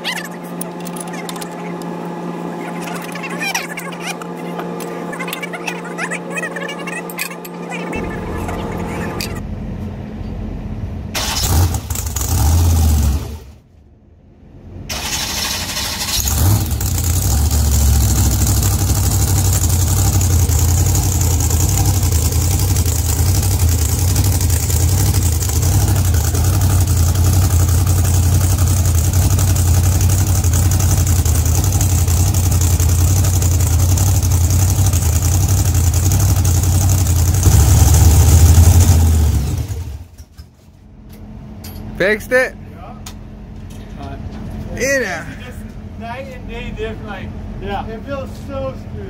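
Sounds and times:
truck engine idling: 0:14.6 - 0:40.2.

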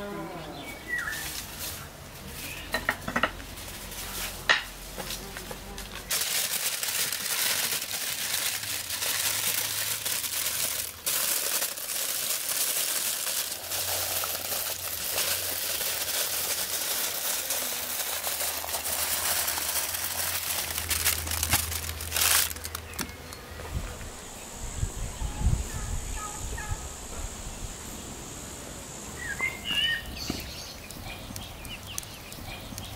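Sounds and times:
aluminium foil crinkling: 0:05.0 - 0:23.2.

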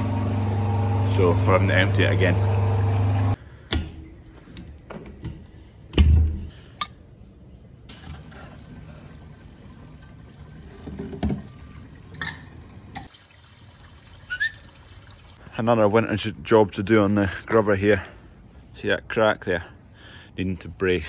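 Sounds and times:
liquid pouring: 0:07.9 - 0:15.4.

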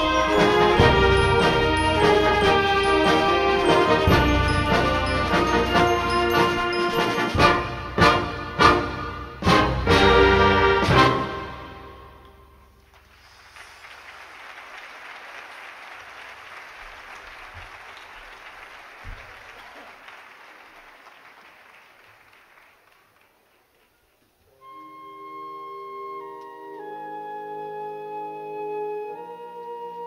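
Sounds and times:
concert band woodwind chords: 0:00.0 - 0:12.8, 0:24.5 - 0:30.0
audience applauding: 0:12.8 - 0:24.4.

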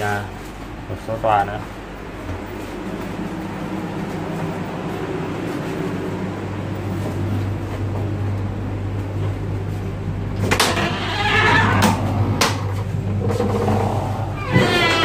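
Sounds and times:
train carriage hum: 0:00.0 - 0:15.0
door squeaking: 0:10.5 - 0:12.2, 0:13.2 - 0:15.0.

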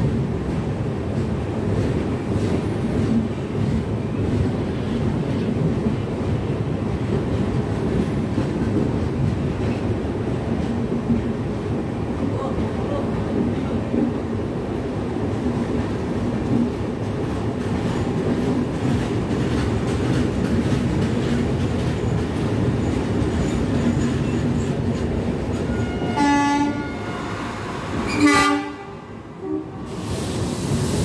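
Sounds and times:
train wheels on rail: 0:00.0 - 0:31.0
train horn blasts: 0:25.7 - 0:29.9.

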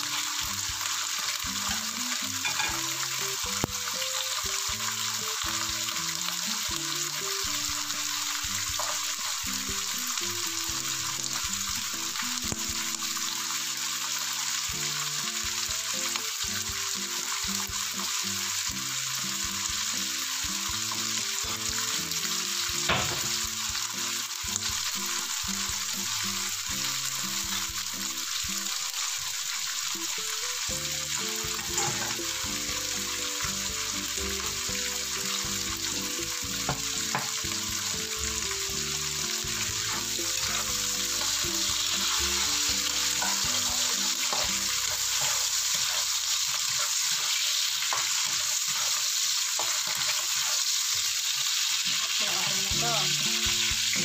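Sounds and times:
beans sizzling in oil: 0:00.0 - 0:54.0.

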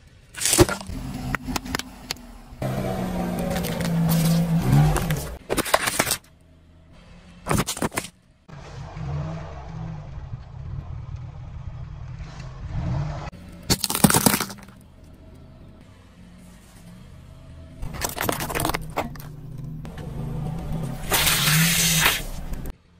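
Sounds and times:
car engine and tyre rumble: 0:00.0 - 0:22.9
objects crunching under tyre: 0:00.3 - 0:06.4, 0:07.4 - 0:08.2, 0:13.3 - 0:15.2, 0:17.7 - 0:22.7.

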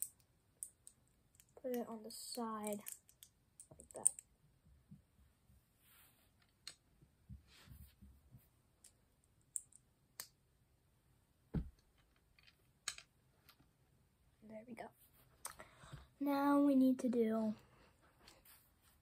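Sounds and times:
plastic toy bricks clicking: 0:00.0 - 0:04.3.

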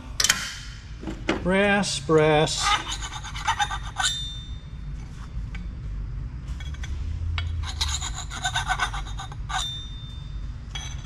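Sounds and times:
file rasping on metal: 0:02.6 - 0:04.4, 0:07.4 - 0:09.8.

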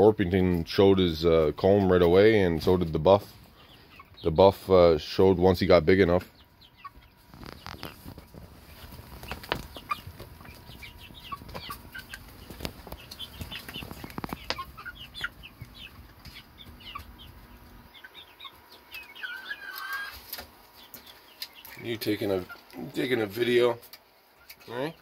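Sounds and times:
chickens peeping and clucking: 0:00.0 - 0:25.0
chicken wavering call: 0:18.0 - 0:20.2.

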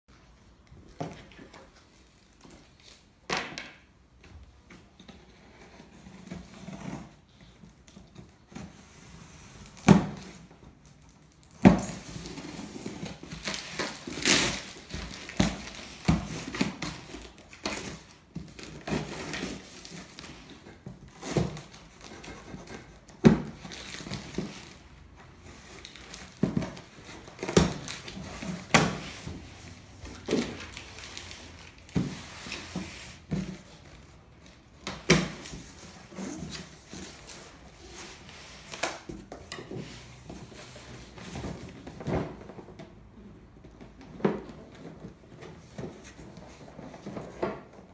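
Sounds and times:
cardboard flaps scraping: 0:12.2 - 0:42.8.

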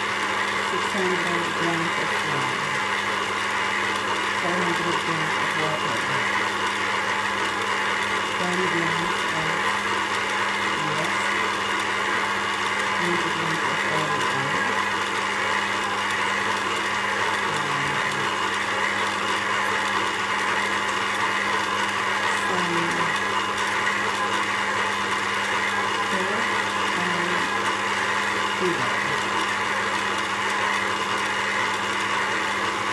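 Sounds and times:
stand mixer motor humming: 0:00.0 - 0:32.9.

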